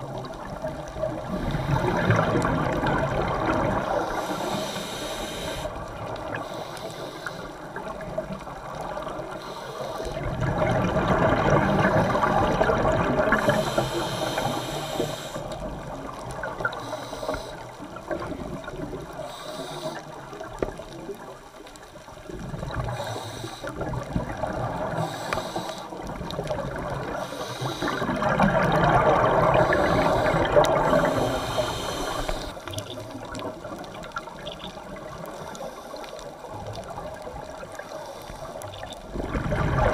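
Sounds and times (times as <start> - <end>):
gurgling exhaled bubbles underwater: 0.0 - 39.9
scuba regulator hissing: 4.1 - 5.7, 13.4 - 15.5, 19.3 - 20.0, 25.0 - 25.9, 29.6 - 32.6.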